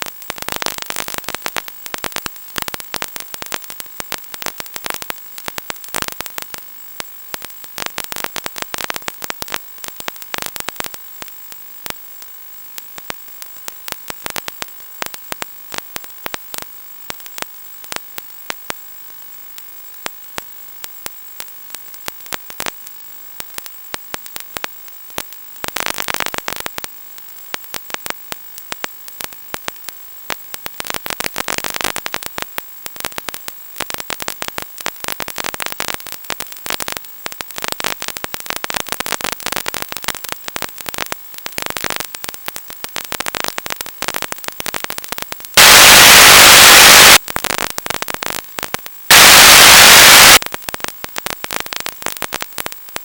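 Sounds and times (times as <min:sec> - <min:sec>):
radio static crackle: 0:33.1 - 0:53.0
white noise hiss bursts: 0:45.6 - 0:47.2, 0:49.1 - 0:50.4.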